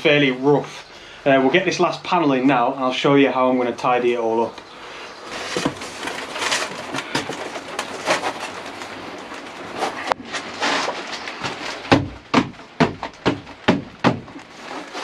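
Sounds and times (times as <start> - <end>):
foam board scraping and rubbing: 5.2 - 15.0
knocks: 11.4 - 14.4.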